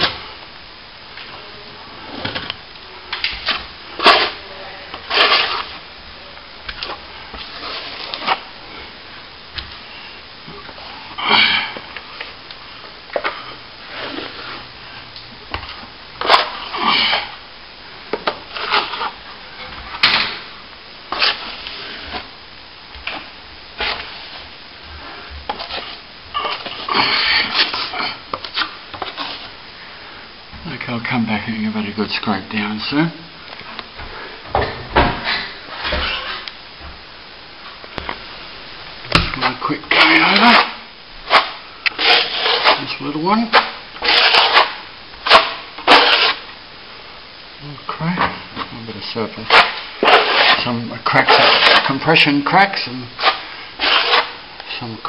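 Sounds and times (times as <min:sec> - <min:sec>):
metal blade scraping plaster: 0:03.5 - 0:04.4, 0:05.0 - 0:05.7, 0:18.5 - 0:19.2, 0:21.1 - 0:21.4, 0:39.9 - 0:46.4, 0:49.4 - 0:52.2, 0:53.2 - 0:54.4.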